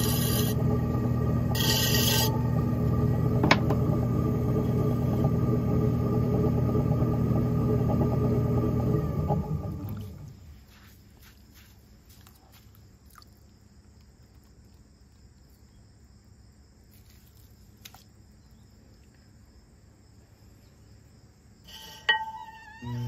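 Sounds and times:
pottery wheel humming: 0:00.0 - 0:10.8, 0:21.5 - 0:23.0
faint high-pitched whine: 0:09.4 - 0:23.0.

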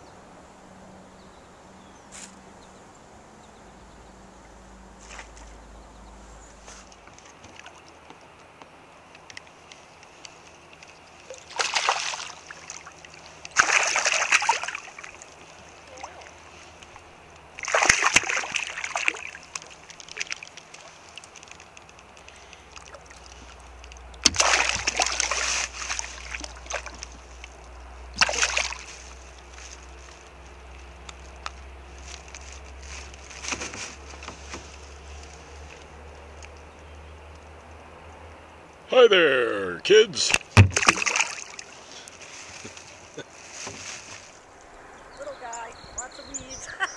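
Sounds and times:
steady low rumble: 0:00.0 - 0:08.1
light ticks and patters: 0:05.0 - 0:11.5, 0:14.7 - 0:17.7, 0:18.8 - 0:24.3, 0:25.5 - 0:28.2, 0:28.8 - 0:38.9
fish splashing at surface: 0:10.6 - 0:30.0, 0:40.3 - 0:42.8.

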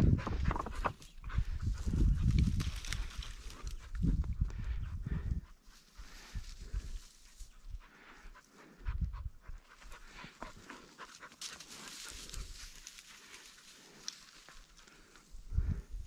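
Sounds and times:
brush crackling and rustling: 0:01.8 - 0:04.0, 0:10.8 - 0:15.3
dog panting: 0:07.5 - 0:15.1.

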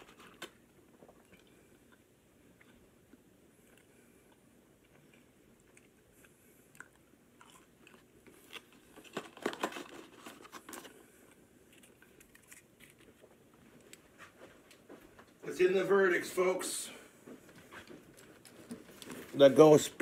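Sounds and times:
crunchy food chewing: 0:00.0 - 0:09.7, 0:10.3 - 0:14.1
cardboard and paper crackling: 0:08.5 - 0:11.0.

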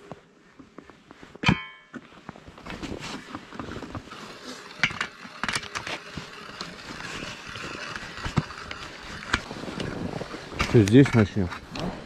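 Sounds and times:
clothing rustling handling noise: 0:08.5 - 0:12.0.

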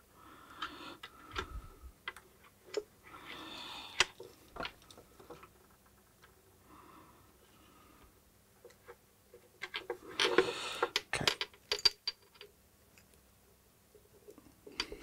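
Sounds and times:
small clicks of parts handled: 0:14.2 - 0:15.0.

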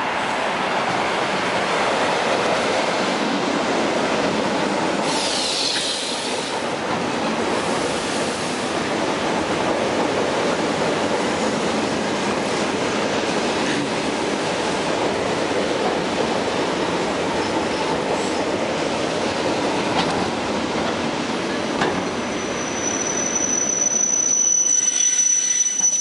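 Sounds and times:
train wheels rumbling on rails: 0:00.0 - 0:24.2
high brake squeal: 0:05.0 - 0:06.6, 0:21.9 - 0:26.0.

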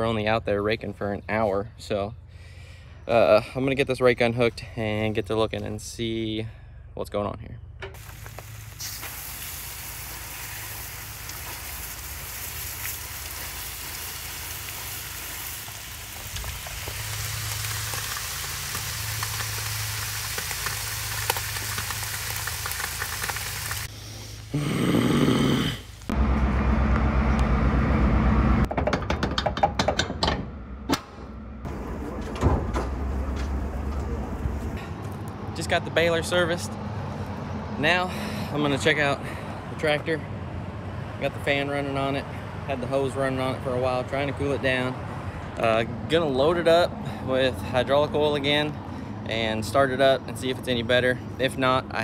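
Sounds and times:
tractor engine rumble: 0:07.4 - 0:25.2, 0:25.8 - 0:40.2
hose spraying water: 0:08.0 - 0:26.1
low hum: 0:25.8 - 0:28.7.

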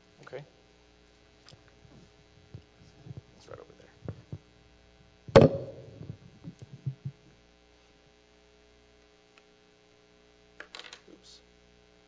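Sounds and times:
faint electrical hum: 0:00.0 - 0:12.0
microphone knocking on table: 0:05.3 - 0:07.2.

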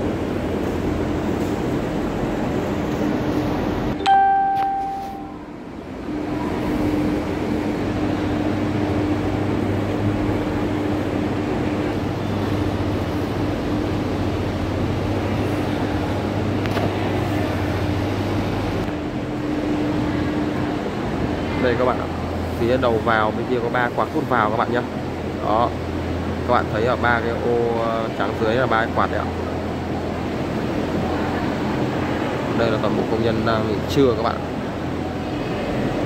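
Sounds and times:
exhaust fans droning: 0:00.0 - 0:36.0
bell-like tone: 0:04.0 - 0:05.5.

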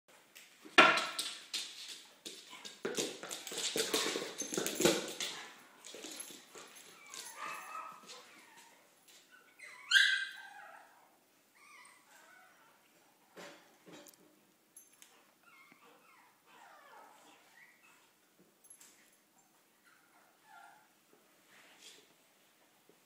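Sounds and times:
dog claws clicking on hardwood floor: 0:00.4 - 0:07.6
dog whimpering: 0:09.4 - 0:12.8, 0:15.4 - 0:18.1.

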